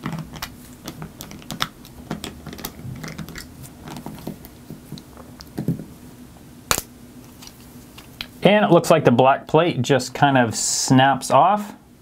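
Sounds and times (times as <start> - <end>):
plastic parts handled: 0.0 - 5.9.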